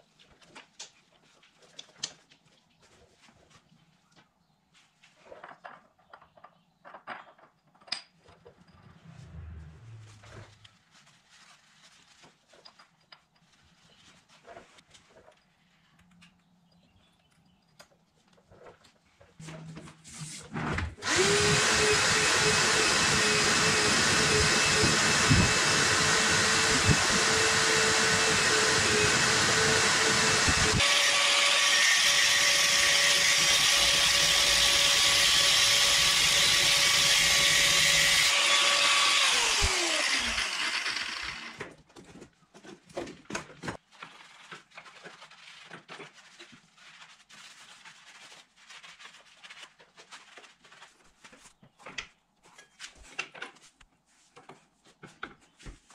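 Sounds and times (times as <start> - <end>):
angle grinder cutting metal chain: 21.0 - 41.6.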